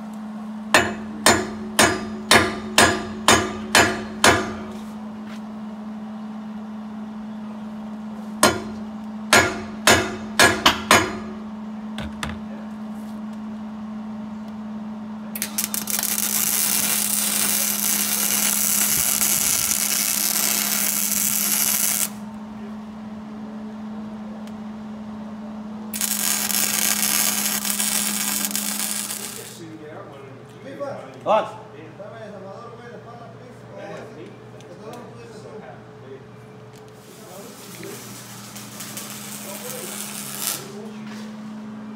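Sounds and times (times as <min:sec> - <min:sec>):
steady hum: 0:00.0 - 0:41.9
arc welder crackling and hissing: 0:15.4 - 0:22.4, 0:25.9 - 0:29.9, 0:36.7 - 0:41.6.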